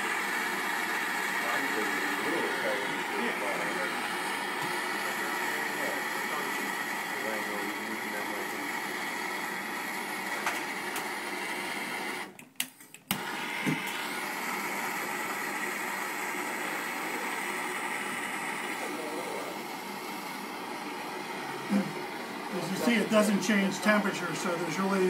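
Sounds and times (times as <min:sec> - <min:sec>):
gas torch flame hissing: 0:00.0 - 0:12.4, 0:13.1 - 0:25.0
clicks: 0:12.3 - 0:14.0.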